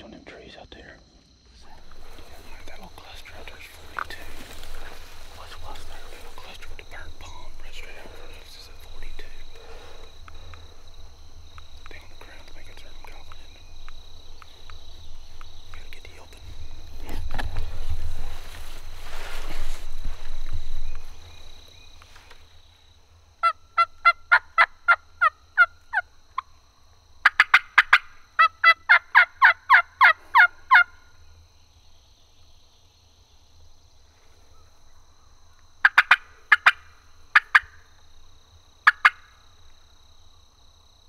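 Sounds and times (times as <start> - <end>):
turkey yelping: 23.4 - 26.1, 27.2 - 31.0, 35.8 - 37.7, 38.8 - 39.3.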